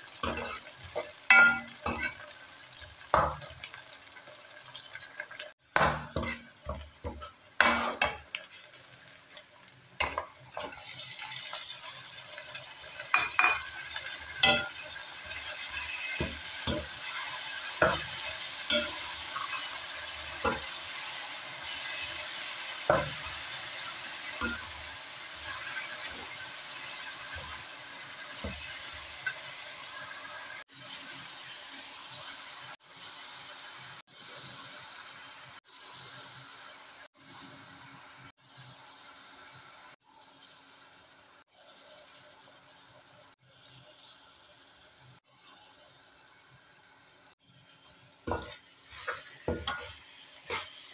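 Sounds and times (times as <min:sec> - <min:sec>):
meat sizzling: 0:00.0 - 0:50.9
onions frying: 0:00.0 - 0:50.9
spoon scraping metal pan: 0:00.2 - 0:02.2, 0:06.0 - 0:08.3, 0:48.3 - 0:50.8.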